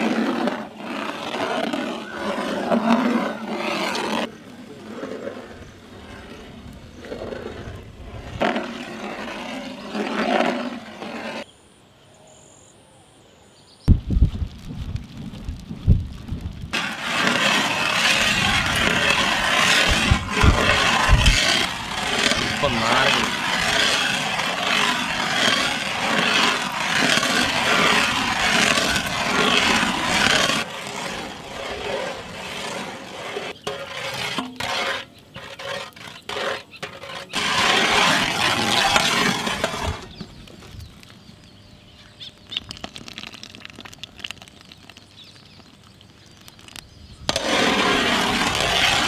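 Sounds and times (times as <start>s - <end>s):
sharp crackles: 13.8s - 49.0s
jam bubbling in a pot: 40.8s - 49.0s.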